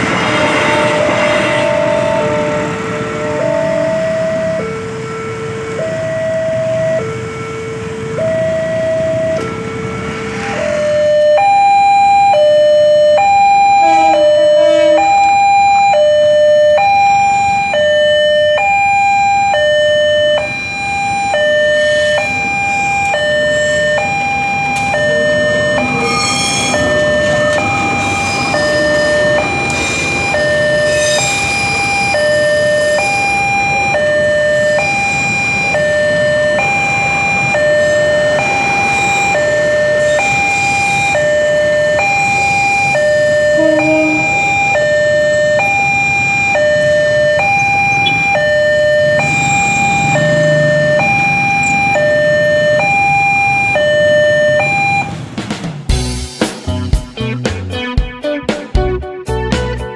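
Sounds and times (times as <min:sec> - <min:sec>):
passing train rumble: 0:00.0 - 0:11.4, 0:12.1 - 0:18.6, 0:19.3 - 0:57.4
level crossing two-tone alarm chime: 0:43.0 - 0:45.3.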